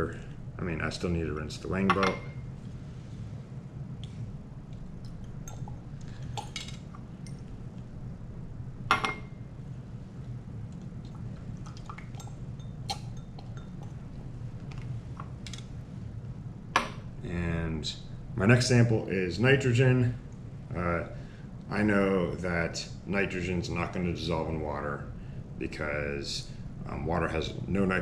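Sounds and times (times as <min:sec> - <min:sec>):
steady low hum: 0:00.0 - 0:28.0
glass beakers clinking: 0:11.6 - 0:14.0.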